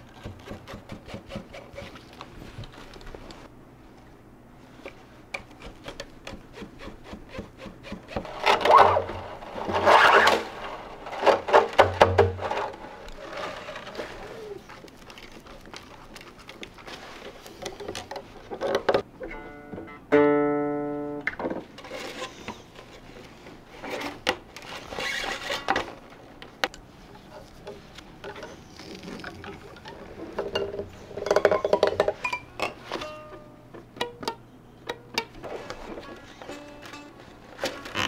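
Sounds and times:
koto strings plucked: 0:19.2 - 0:21.3.

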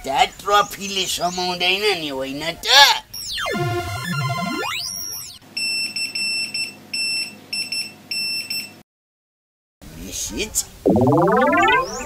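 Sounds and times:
comic sliding-pitch sound effect: 0:03.3 - 0:05.4, 0:10.9 - 0:12.0.

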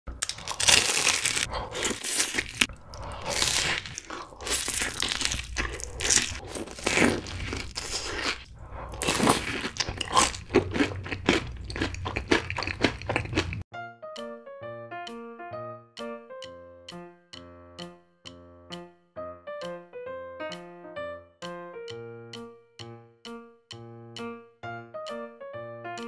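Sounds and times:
crunchy chewing: 0:00.2 - 0:13.6
light piano music: 0:13.7 - 0:26.0.

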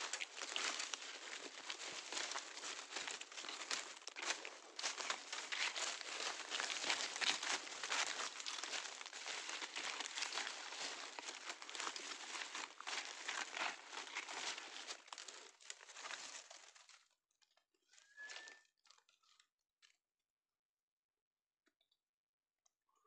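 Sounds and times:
dry leaf litter crunching: 0:00.0 - 0:16.9.

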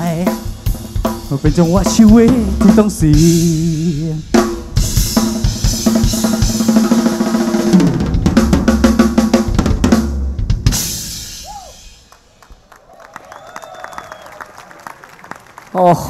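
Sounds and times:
backing music track: 0:00.0 - 0:11.1
drum kit played fast: 0:00.0 - 0:12.1.

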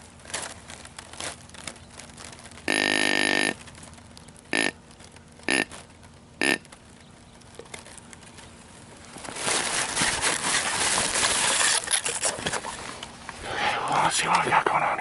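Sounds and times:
rustling and handling noise: 0:00.0 - 0:15.0
deer grunt call: 0:02.7 - 0:03.6, 0:04.5 - 0:04.8.

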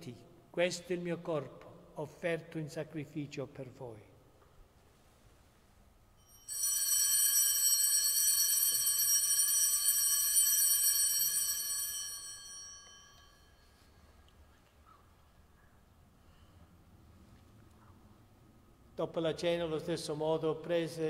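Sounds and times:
altar bells ringing: 0:06.2 - 0:14.0.

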